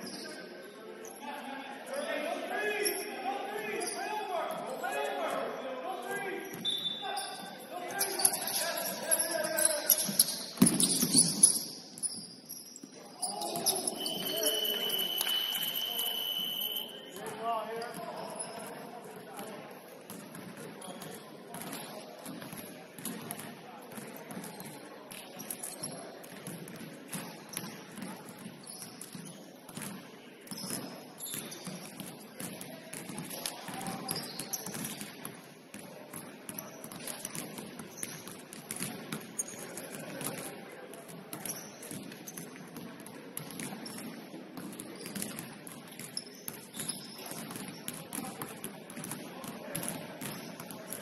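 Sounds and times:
basketball bouncing: 10.0 - 11.4.

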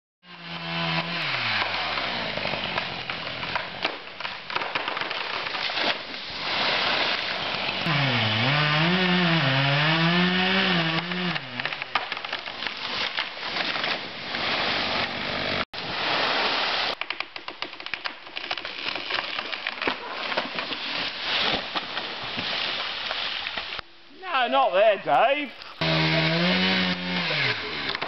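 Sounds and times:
chainsaw running: 0.2 - 3.8, 6.8 - 11.9, 14.4 - 15.7, 25.8 - 28.0
branches cracking: 0.4 - 23.9, 25.1 - 28.0.

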